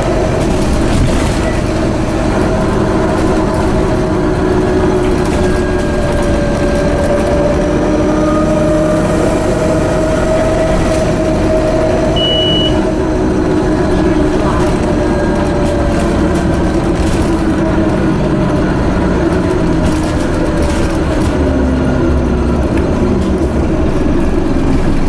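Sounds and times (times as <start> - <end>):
bus engine drone: 0.0 - 25.0
short high beep: 12.2 - 12.8.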